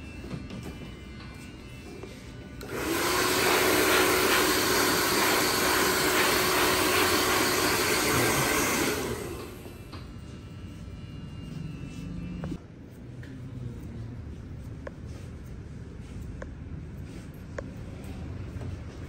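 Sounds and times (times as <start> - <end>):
hair dryer blowing: 2.6 - 10.0.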